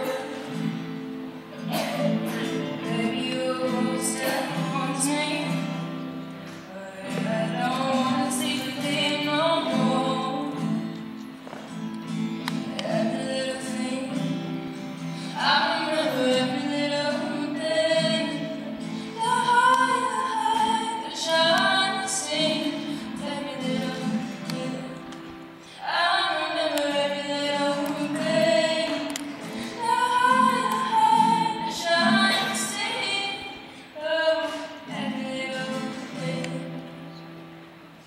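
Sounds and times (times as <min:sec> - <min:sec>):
woman singing: 0:00.0 - 0:01.0, 0:01.7 - 0:11.1, 0:12.4 - 0:37.3
acoustic guitar strumming: 0:00.0 - 0:38.0.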